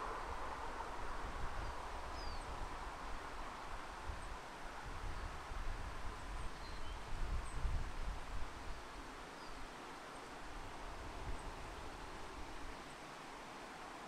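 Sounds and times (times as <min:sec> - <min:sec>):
wind gusts on microphone: 0:00.0 - 0:13.8
breeze rustling trees: 0:00.0 - 0:14.0
faint bird chirps: 0:06.4 - 0:07.6.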